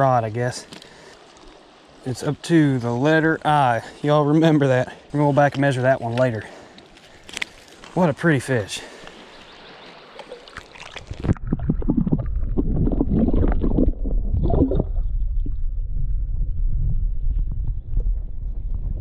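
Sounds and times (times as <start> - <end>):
underwater flowing water gurgle: 9.3 - 16.4.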